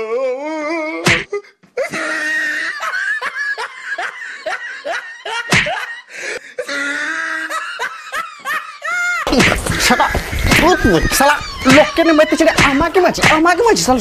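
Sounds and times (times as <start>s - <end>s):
person laughing: 1.8s - 12.9s
sharp crack: 9.3s - 13.4s.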